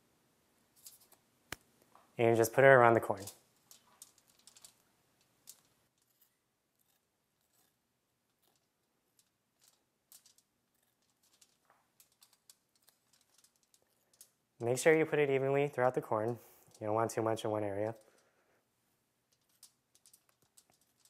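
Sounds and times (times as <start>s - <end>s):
knife scraping on corn: 6.0s - 8.6s, 10.7s - 11.1s.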